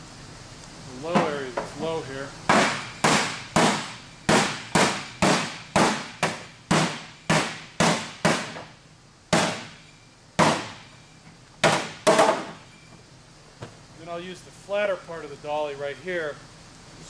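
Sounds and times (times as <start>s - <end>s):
hammer striking metal panel: 2.5s - 8.7s, 9.4s - 9.8s, 11.6s - 12.6s.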